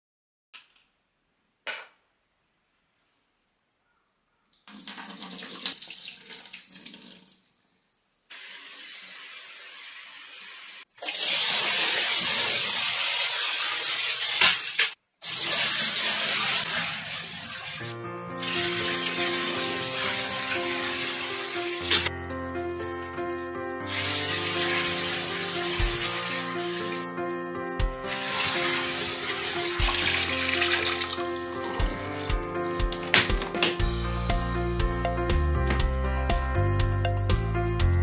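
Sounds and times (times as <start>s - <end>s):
tap water running into sink: 4.7s - 7.5s, 8.3s - 22.1s, 23.9s - 27.1s, 28.1s - 33.8s
music: 17.8s - 38.0s.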